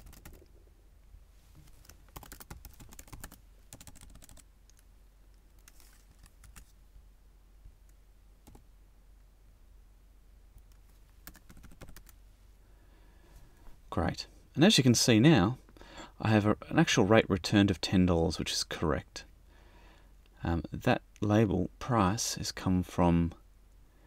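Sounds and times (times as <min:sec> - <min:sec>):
keyboard typing: 0:00.0 - 0:00.6, 0:01.7 - 0:04.8, 0:05.5 - 0:06.7, 0:08.4 - 0:08.6, 0:10.6 - 0:12.2
low steady hum: 0:00.0 - 0:24.0.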